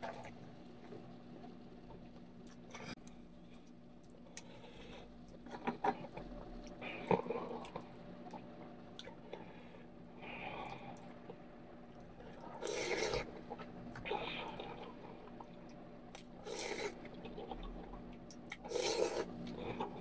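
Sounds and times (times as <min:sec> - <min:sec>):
chewing: 0:02.4 - 0:09.5, 0:10.6 - 0:20.0
noodle slurp: 0:12.4 - 0:15.5, 0:16.2 - 0:20.0.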